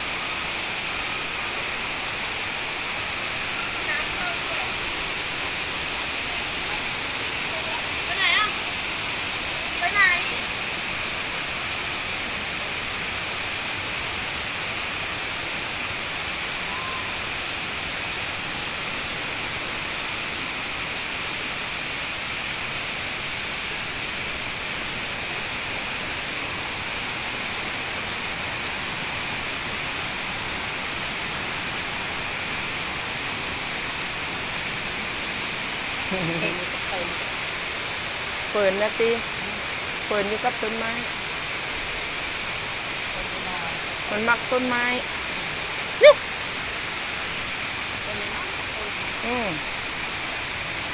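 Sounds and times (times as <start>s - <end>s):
stream and waterfall rushing: 0.0s - 50.9s.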